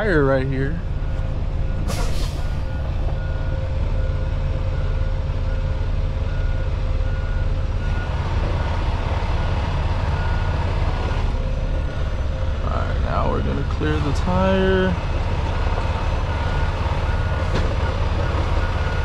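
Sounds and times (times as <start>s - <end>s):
truck diesel engine rumble: 0.0s - 19.0s
reversing alarm beeping: 1.0s - 8.8s, 9.4s - 11.3s, 15.5s - 19.0s.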